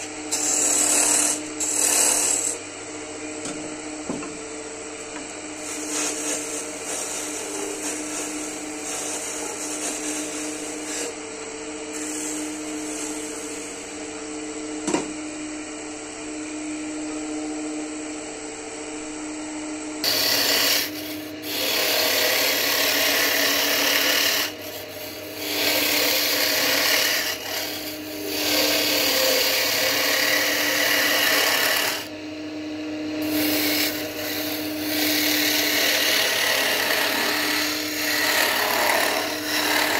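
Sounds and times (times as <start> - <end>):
tool cutting spinning wood: 0.0 - 2.6, 5.6 - 11.2, 11.9 - 13.9, 20.0 - 32.2, 33.0 - 39.9
wood lathe humming: 0.0 - 2.6, 5.0 - 14.4, 20.0 - 39.9.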